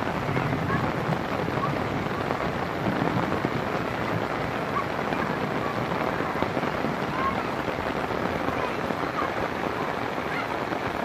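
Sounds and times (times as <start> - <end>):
rain falling on grass: 0.0 - 11.0.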